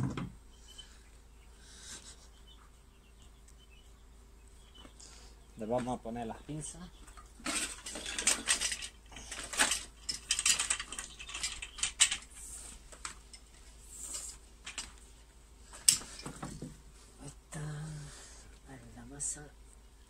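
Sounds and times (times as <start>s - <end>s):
metal cables and clamps clinking: 7.4s - 12.3s.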